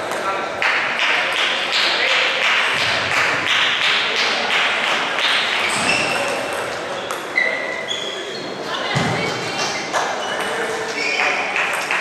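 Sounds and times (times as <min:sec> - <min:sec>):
short squeaks: 0:05.6 - 0:08.6.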